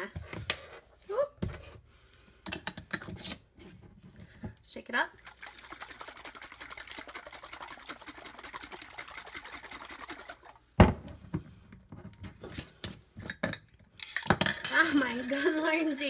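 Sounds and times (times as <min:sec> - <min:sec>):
liquid sloshing in shaken jar: 0:05.2 - 0:10.7.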